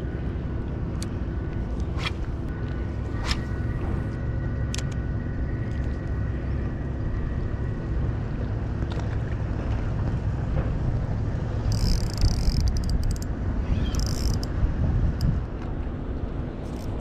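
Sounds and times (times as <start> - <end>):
motor droning: 0.1 - 8.8
wind on microphone: 11.9 - 15.6.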